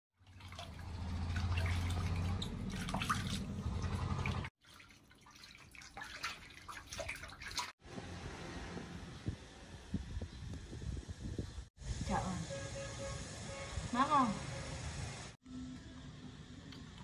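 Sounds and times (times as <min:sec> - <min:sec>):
small splashes: 0:00.2 - 0:07.8
water sloshing and dripping: 0:00.2 - 0:07.8.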